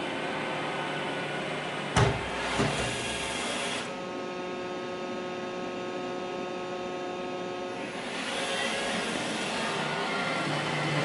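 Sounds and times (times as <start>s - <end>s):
robot vacuum running: 2.0s - 3.9s, 7.7s - 11.0s.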